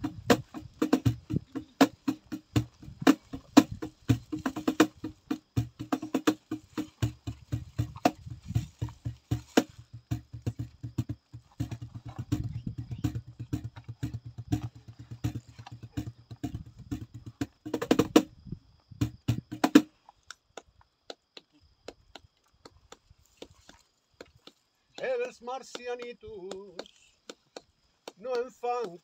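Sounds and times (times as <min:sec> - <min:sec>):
cajon played by hand: 0:00.0 - 0:18.4, 0:19.0 - 0:20.0, 0:21.4 - 0:29.0
hand claps: 0:19.8 - 0:29.0.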